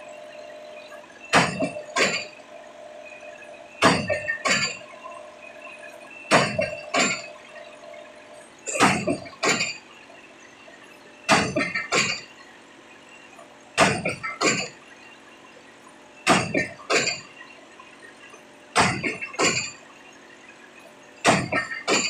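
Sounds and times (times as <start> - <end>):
pile hammer metallic clanks: 1.3 - 2.3, 3.8 - 4.8, 6.3 - 7.3, 8.7 - 9.8.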